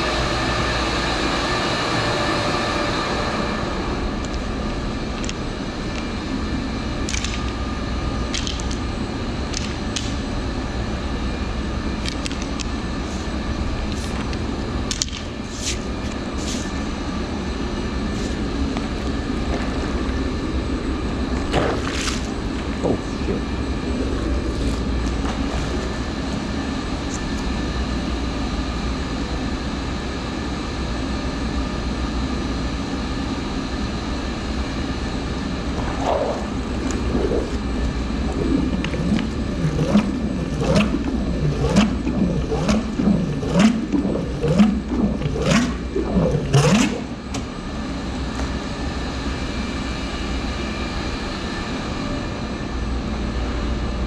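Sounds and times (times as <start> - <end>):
pumps humming: 2.6 - 27.7, 35.1 - 47.9
drain gurgling glugs: 35.7 - 47.2.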